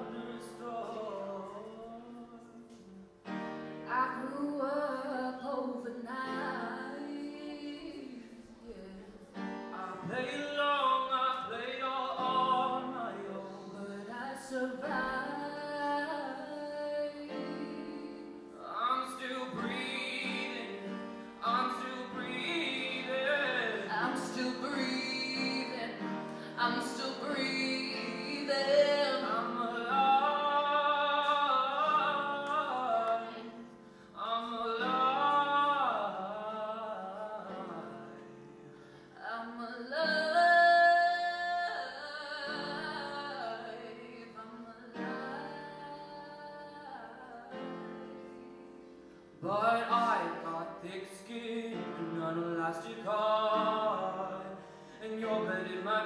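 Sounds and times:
piano chords: 0.0 - 56.0
woman singing into a microphone: 3.9 - 10.3, 13.2 - 38.4, 39.1 - 49.0.

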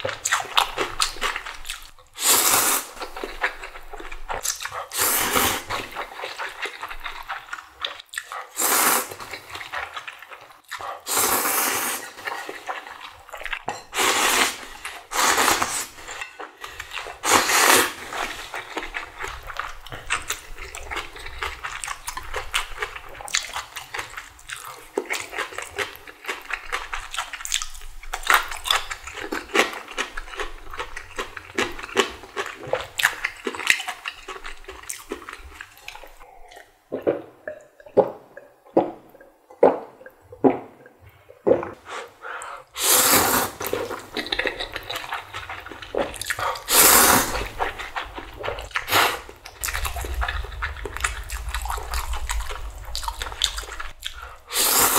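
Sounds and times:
loud slurps: 2.2 - 3.0, 4.8 - 5.9, 8.5 - 9.4, 10.8 - 12.7, 14.0 - 16.2, 16.9 - 19.3, 41.8 - 54.9
wet chewing and crackling bites: 43.6 - 54.6.

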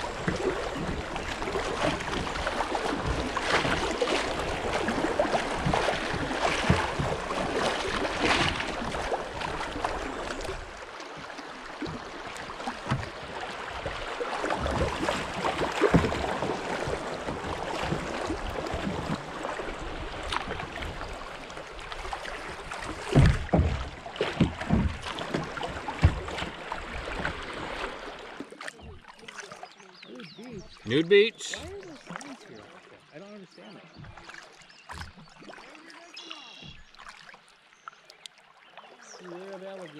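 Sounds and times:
paddle splashes: 0.0 - 39.9
river water rushing: 30.3 - 32.9.

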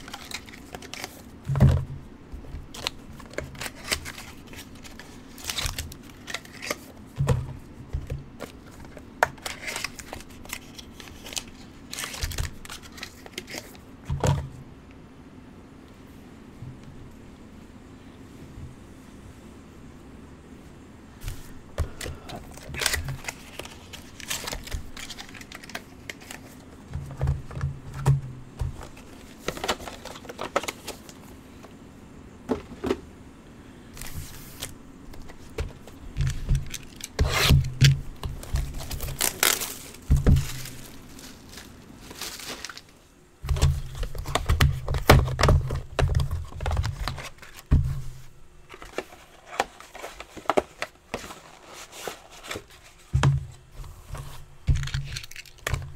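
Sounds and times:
wrappers crinkling and tearing: 0.0 - 1.3, 2.7 - 7.0, 8.7 - 13.8, 21.9 - 26.6, 34.0 - 43.0, 54.7 - 55.7
cards scraping and clicking: 2.7 - 7.0, 8.4 - 13.8, 21.2 - 26.8, 34.0 - 42.9.

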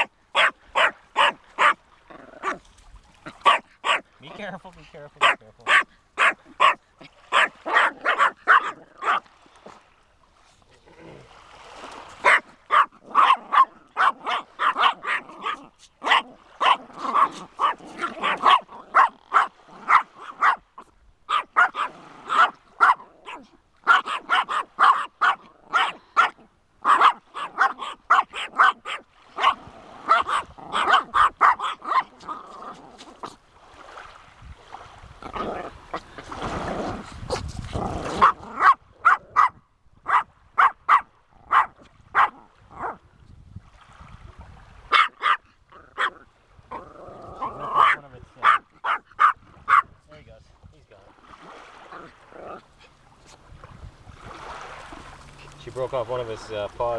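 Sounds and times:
small dog barking rapidly: 0.0 - 1.8, 3.4 - 4.1, 5.2 - 9.2, 12.2 - 20.6, 21.3 - 32.8, 38.1 - 43.0, 44.9 - 46.2, 47.4 - 49.9.

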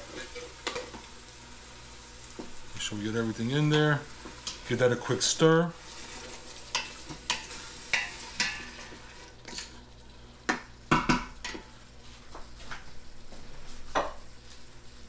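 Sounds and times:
food sizzling: 0.0 - 15.0
spoon knocking against pot: 10.5 - 11.6.

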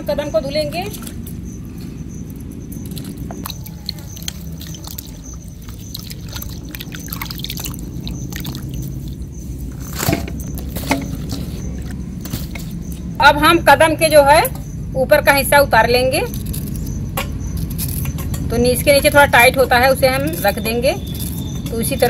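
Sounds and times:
hands splashing fruit in water: 2.9 - 9.2.

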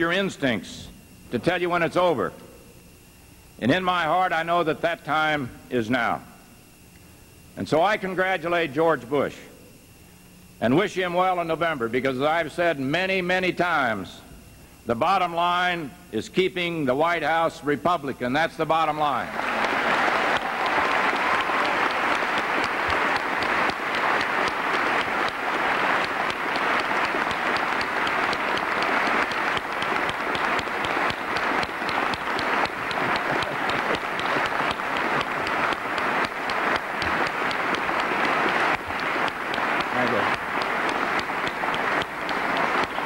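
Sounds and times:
audience applauding: 19.3 - 43.0.

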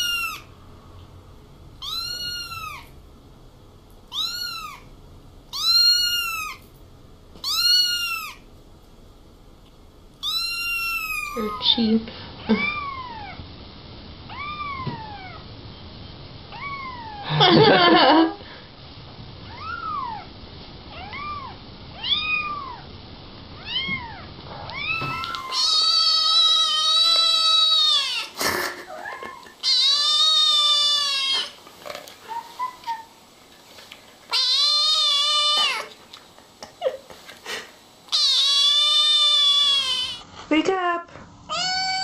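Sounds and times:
kitten meowing: 0.0 - 0.5, 1.8 - 2.9, 4.1 - 4.9, 5.5 - 6.6, 7.4 - 8.4, 10.2 - 11.8, 14.3 - 15.4, 16.5 - 17.2, 19.5 - 20.2, 20.9 - 22.8, 23.6 - 28.3, 28.9 - 31.5, 34.3 - 35.9, 38.1 - 40.2, 41.5 - 42.0.

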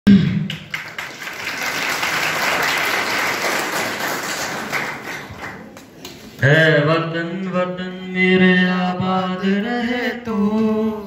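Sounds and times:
audience clapping: 0.4 - 6.4.

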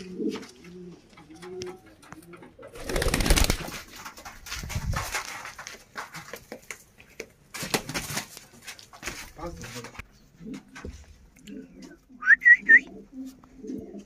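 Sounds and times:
pigeon cooing: 0.0 - 3.5, 11.4 - 14.0.

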